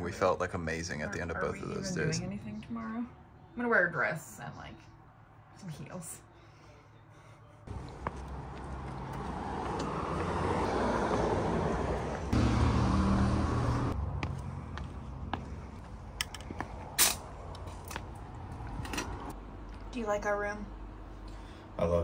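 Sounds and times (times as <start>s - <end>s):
car passing: 7.7s - 16.0s.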